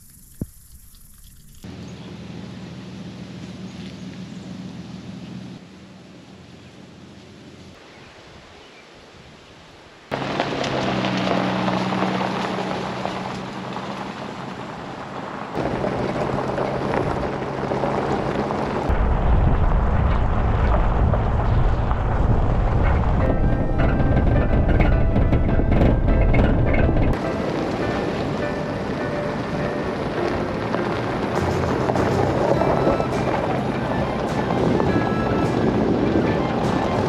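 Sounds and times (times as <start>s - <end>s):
truck engine running: 10.1s - 37.0s
tyres crunching over gravel: 10.1s - 37.0s
wind against microphone: 15.6s - 28.3s, 29.8s - 37.0s.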